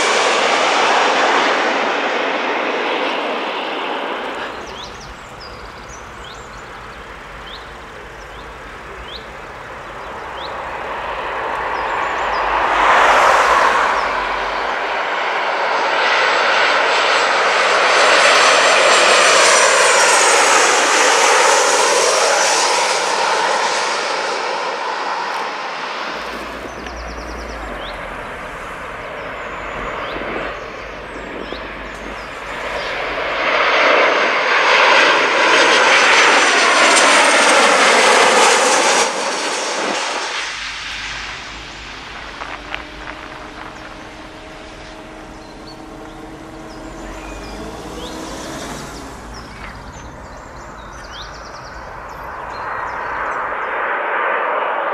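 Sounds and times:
jet airliner passing overhead: 0:00.0 - 0:54.9.

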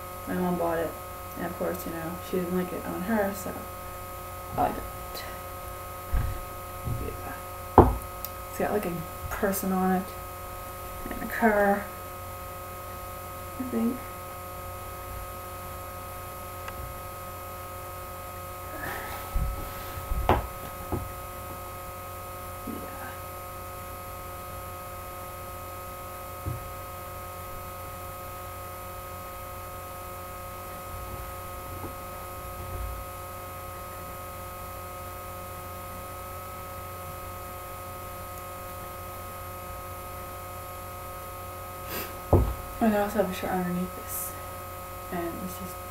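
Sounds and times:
electrical hum and buzz: 0:00.0 - 0:45.9
soft knocks and rustles: 0:06.1 - 0:08.0, 0:19.3 - 0:21.2, 0:42.3 - 0:42.7.

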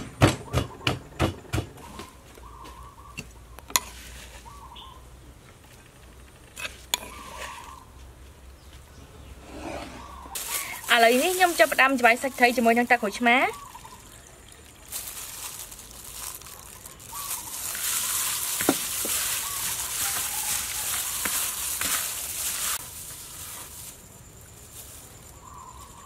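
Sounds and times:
plastic glove crinkling: 0:10.4 - 0:14.1, 0:14.7 - 0:25.9
wet squishing of fish: 0:10.4 - 0:22.8.

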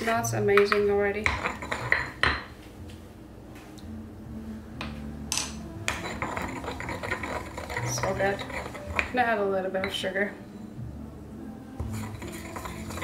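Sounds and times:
pestle grinding and scraping: 0:00.6 - 0:02.5, 0:05.9 - 0:09.2, 0:11.8 - 0:13.0
stone pestle knocking in mortar: 0:00.6 - 0:02.5, 0:05.3 - 0:09.2.

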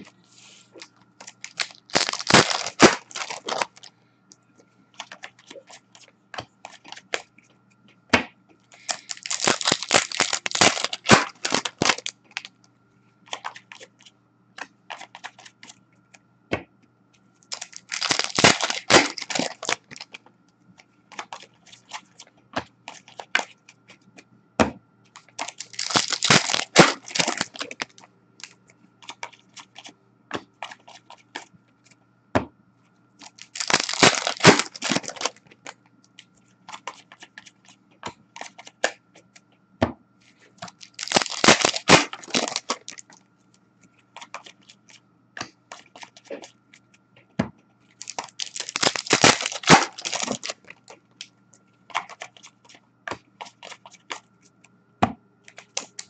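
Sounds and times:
foil wrappers tearing and crinkling: 0:01.2 - 0:03.9, 0:08.8 - 0:12.5, 0:17.5 - 0:20.1, 0:25.2 - 0:29.9, 0:33.2 - 0:35.5, 0:40.6 - 0:43.1, 0:47.9 - 0:51.3, 0:55.5 - 0:56.0.

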